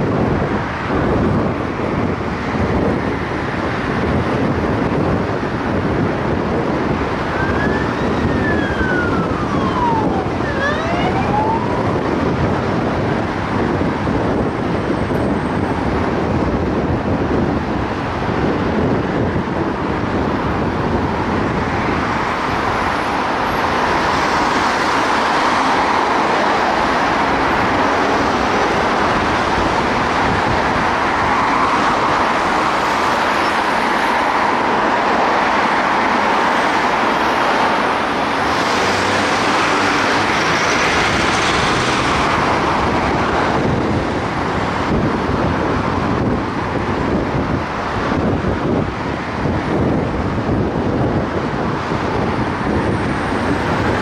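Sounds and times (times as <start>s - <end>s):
car road and wind noise: 0.0s - 54.0s
siren: 7.2s - 12.2s.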